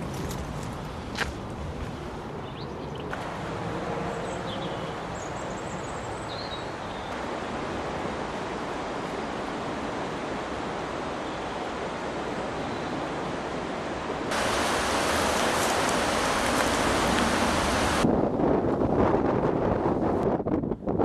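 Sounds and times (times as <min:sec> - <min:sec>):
steady rushing noise: 0:03.2 - 0:19.8.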